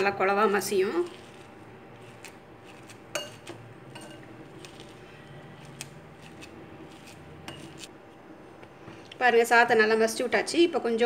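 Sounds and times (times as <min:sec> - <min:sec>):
spoon clinking against glass bowl: 0:03.1 - 0:05.4.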